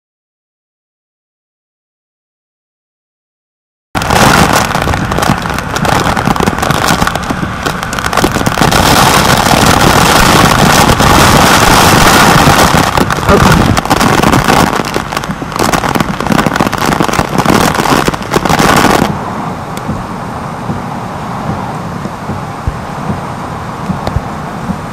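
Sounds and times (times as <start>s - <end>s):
wind rushing: 4.0s - 24.9s
rain striking camera housing: 4.2s - 8.4s.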